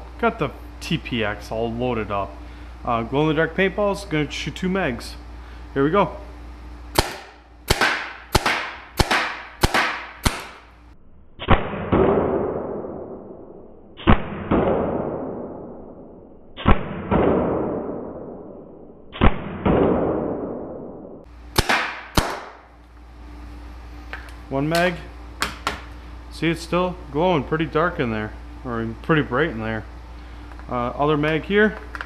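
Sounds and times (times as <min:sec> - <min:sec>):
paintball pistol shots: 0:07.0 - 0:10.7, 0:14.0 - 0:15.5, 0:16.6 - 0:18.2, 0:21.6 - 0:22.6.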